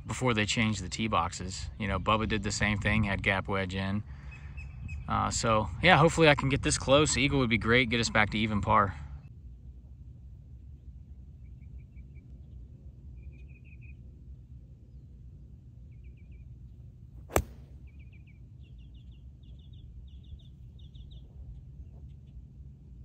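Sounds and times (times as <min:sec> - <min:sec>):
wind rumble on microphone: 0:01.3 - 0:08.3
golf club striking ball: 0:17.2 - 0:17.8.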